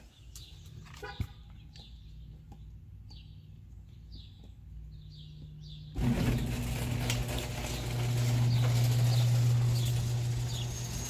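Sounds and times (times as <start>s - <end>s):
bird chirping: 0.0s - 6.6s.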